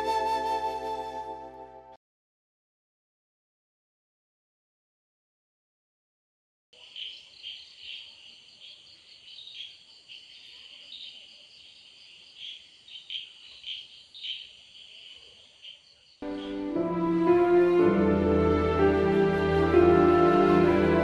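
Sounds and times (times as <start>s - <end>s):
crickets chirping: 6.8s - 16.6s.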